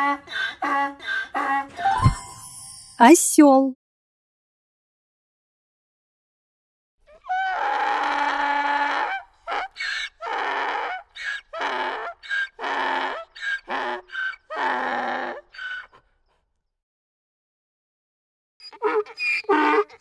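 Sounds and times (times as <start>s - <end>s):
donkey braying: 0.0s - 2.0s, 7.1s - 16.0s, 18.6s - 20.0s.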